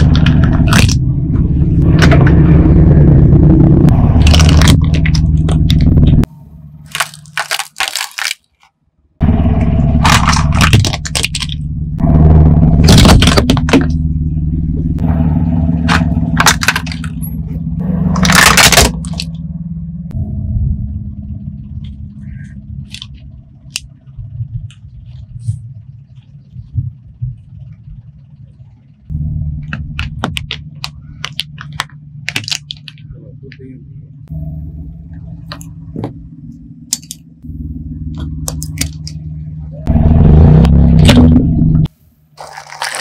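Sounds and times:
plastic toys cracking: 0:00.0 - 0:01.0, 0:04.1 - 0:05.9, 0:06.9 - 0:08.8, 0:10.0 - 0:11.6, 0:12.8 - 0:13.9, 0:15.9 - 0:17.2, 0:18.2 - 0:19.3, 0:30.0 - 0:33.1, 0:36.9 - 0:37.2, 0:38.4 - 0:39.2, 0:42.4 - 0:43.0
car engine running: 0:00.0 - 0:08.1, 0:09.2 - 0:43.0.

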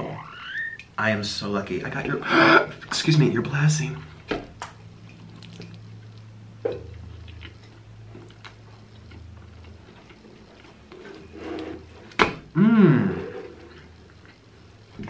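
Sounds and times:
person chewing food: 0:04.8 - 0:11.3.

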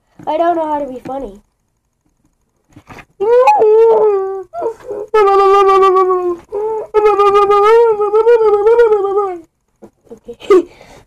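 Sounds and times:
boy wailing: 0:03.2 - 0:09.5.

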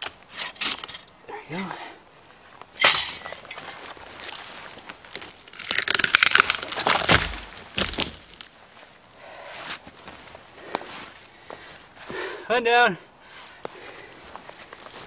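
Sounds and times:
branches breaking crackle: 0:02.7 - 0:08.6
dry wood cracking: 0:02.9 - 0:08.6.

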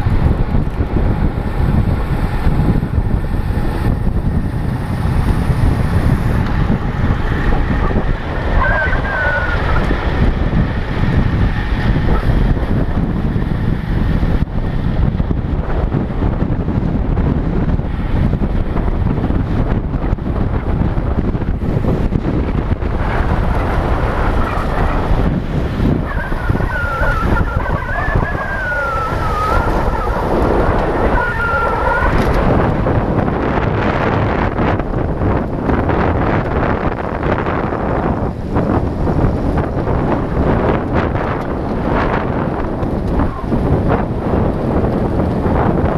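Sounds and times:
heavy wind buffeting camera: 0:00.0 - 0:45.9
thin wavering whistling tone: 0:26.0 - 0:30.3.

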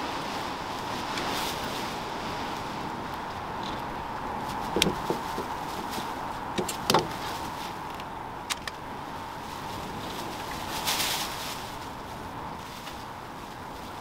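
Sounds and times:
caulking gun clicking: 0:08.5 - 0:08.8.

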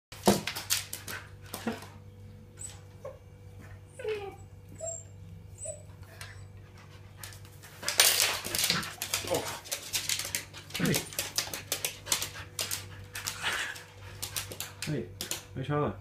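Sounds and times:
dog whining: 0:02.5 - 0:06.7.

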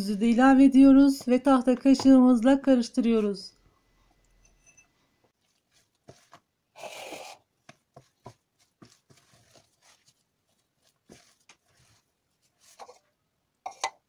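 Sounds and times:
spoon stirring batter in bowl: 0:04.4 - 0:06.5, 0:07.6 - 0:14.0.

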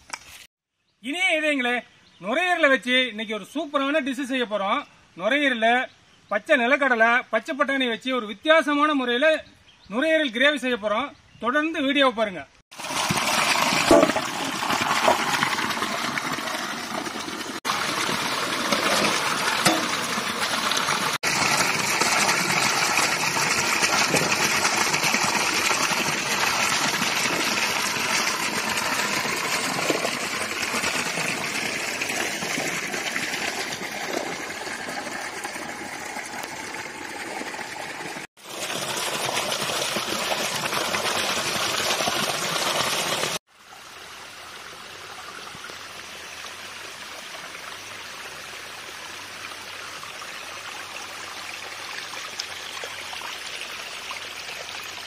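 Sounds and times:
splashing of vegetables washed: 0:12.7 - 0:43.4
water running along stone channel: 0:12.7 - 0:55.0.

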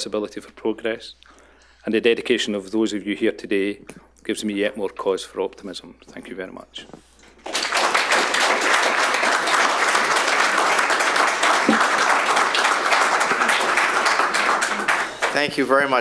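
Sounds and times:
audience applauding: 0:07.4 - 0:16.0.

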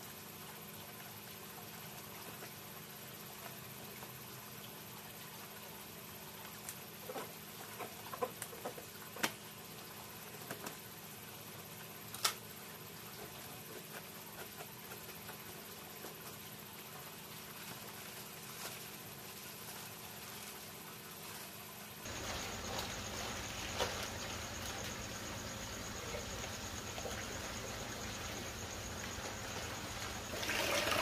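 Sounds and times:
faint low hum: 0:12.1 - 0:31.0
water pouring into a tub: 0:29.0 - 0:31.0.

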